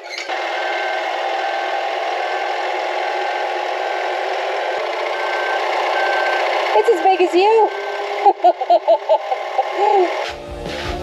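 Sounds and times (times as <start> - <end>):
wheel loader engine running: 0.0 - 11.0
short high beeps: 5.1 - 8.3.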